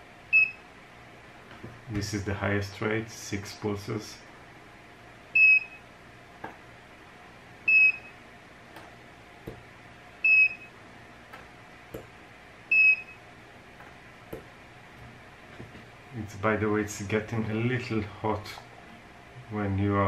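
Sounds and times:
spot welder short high beeps: 0:05.4 - 0:05.8, 0:07.7 - 0:08.2, 0:10.3 - 0:10.7, 0:12.7 - 0:13.2.

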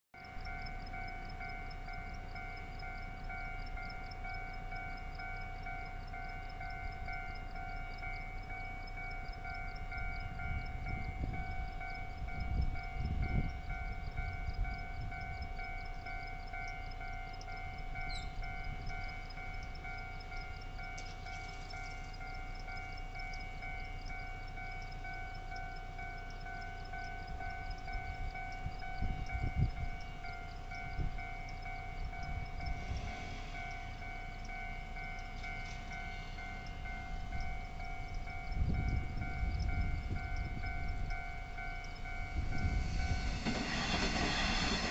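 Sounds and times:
level crossing warning bell: 0:00.2 - 0:44.9
low rumbles: 0:28.0 - 0:44.9.

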